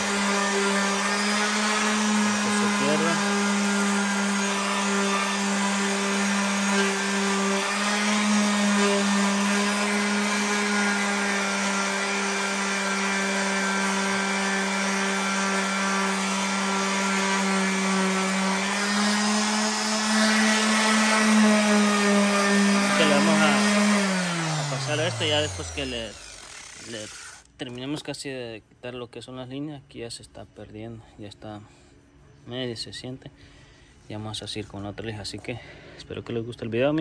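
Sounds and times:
power sander on metal rim: 0.0 - 27.5.

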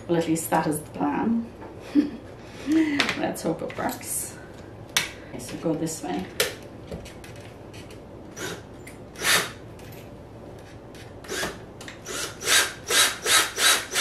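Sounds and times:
drill chuck ratcheting: 12.1 - 14.0.

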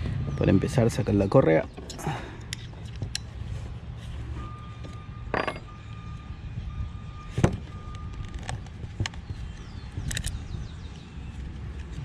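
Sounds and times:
plastic and metal parts clicking: 10.0 - 10.4.

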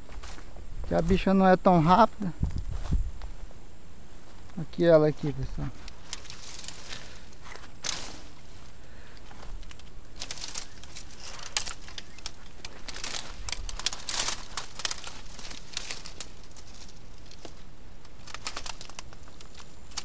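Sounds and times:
branches and leaves crackling: 0.0 - 20.0
twigs snapping: 5.6 - 20.0.

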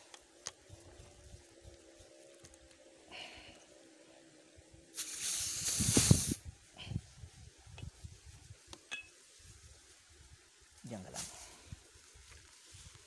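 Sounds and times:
compressed air hissing: 4.9 - 6.5.

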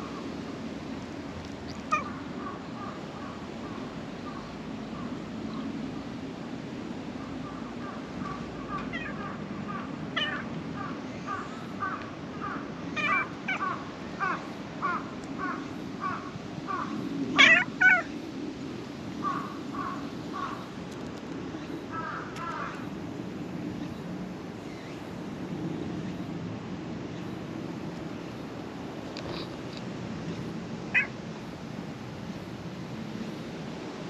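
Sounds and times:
crows cawing: 8.2 - 18.1, 19.2 - 20.7, 21.9 - 22.9, 30.9 - 31.1
cat meowing: 13.0 - 13.6, 17.4 - 18.1, 30.9 - 31.1.

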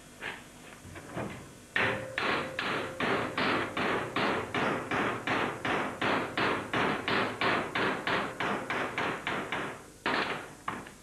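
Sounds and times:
hammer blows on steel: 1.8 - 9.7.

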